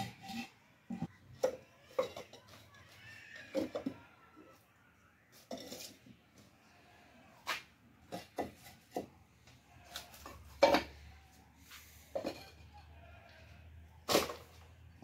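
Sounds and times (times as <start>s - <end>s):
flowerpots knocking together: 0.0s - 4.1s, 7.5s - 9.2s, 9.9s - 11.1s, 12.1s - 12.7s, 14.0s - 14.8s.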